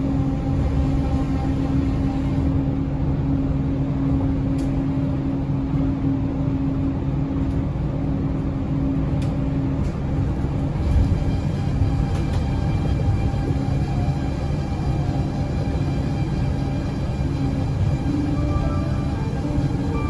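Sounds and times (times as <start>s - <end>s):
monorail train rumble: 0.0s - 20.0s
faint high whine: 13.8s - 20.0s.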